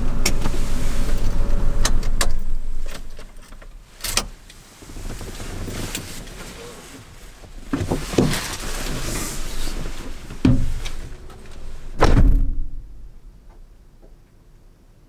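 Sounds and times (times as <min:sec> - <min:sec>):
clothing rustle: 0:00.4 - 0:01.8, 0:02.4 - 0:12.0
car door shutting with thud: 0:12.0 - 0:12.8.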